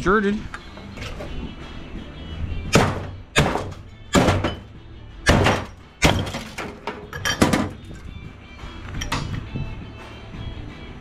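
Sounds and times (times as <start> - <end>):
metal scrap clanking: 3.0 - 4.7, 5.3 - 7.9, 9.0 - 9.4.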